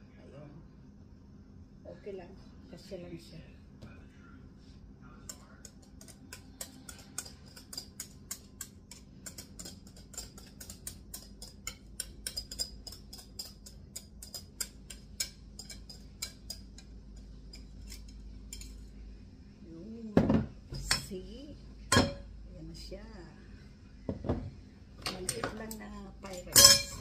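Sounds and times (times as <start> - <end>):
utensil clicking against glass bowl: 5.3 - 18.7.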